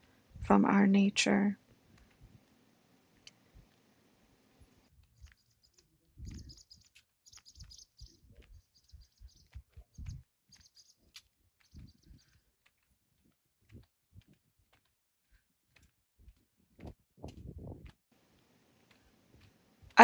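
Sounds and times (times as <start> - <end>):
small birds chirping: 4.6 - 17.9
footsteps on pavement: 4.9 - 20.0.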